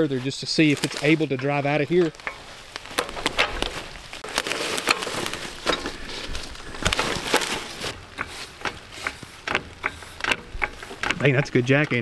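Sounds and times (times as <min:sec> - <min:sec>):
jack clicking and knocking: 0:08.0 - 0:12.0.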